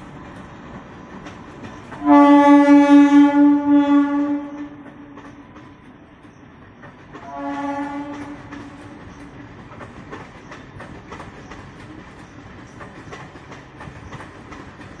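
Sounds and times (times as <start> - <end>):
train wheels clacking over rail joints: 0.0 - 15.0
train horn blast: 2.0 - 5.2, 7.2 - 8.8.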